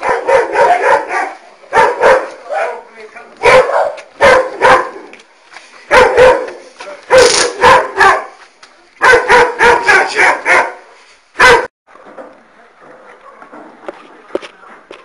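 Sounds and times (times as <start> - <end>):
dog barking loudly: 0.0 - 5.1, 5.9 - 8.4, 9.0 - 11.7.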